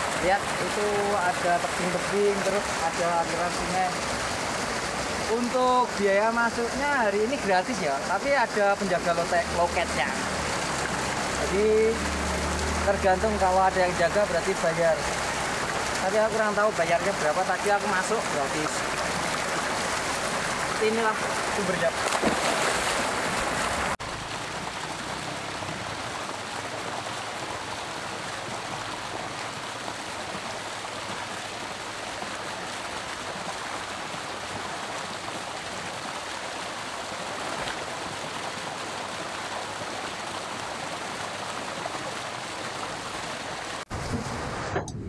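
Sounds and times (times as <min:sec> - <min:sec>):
water gushing into pool: 0:00.0 - 0:44.6
person splashing into pool: 0:21.3 - 0:24.0.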